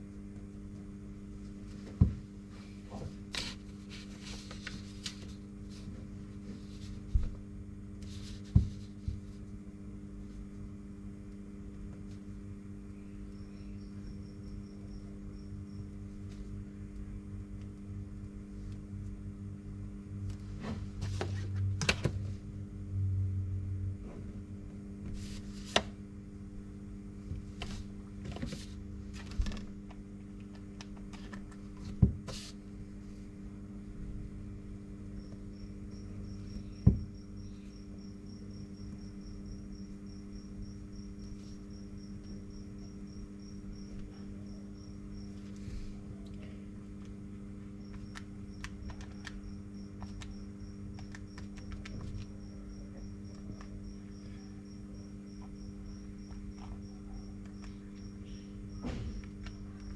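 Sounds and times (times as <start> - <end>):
electrical hum: 0.0 - 59.9
faint high pulsing chirp: 12.9 - 15.9.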